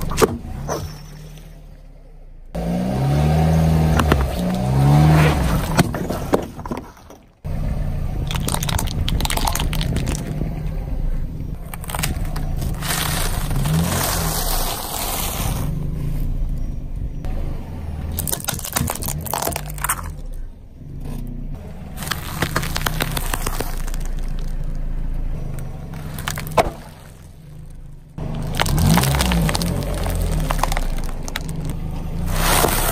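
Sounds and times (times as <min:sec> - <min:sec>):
car engine running low: 0:00.0 - 0:32.9
tyre crushing plastic toys: 0:03.8 - 0:07.4, 0:08.2 - 0:10.4, 0:11.6 - 0:15.7, 0:18.1 - 0:20.4, 0:21.9 - 0:24.7, 0:25.9 - 0:32.9.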